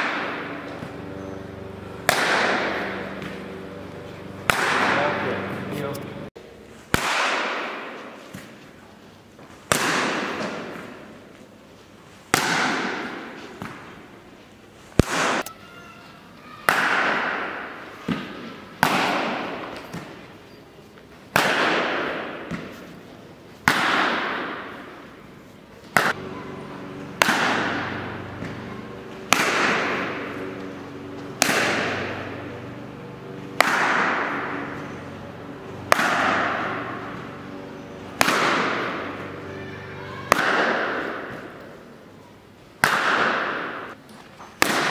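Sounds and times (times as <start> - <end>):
cricket bat striking balls: 0.0 - 5.7, 6.9 - 8.6, 9.6 - 11.2, 12.3 - 14.0, 16.6 - 20.4, 21.3 - 23.0, 23.6 - 25.2, 25.8 - 42.0, 42.8 - 44.0, 44.6 - 44.9.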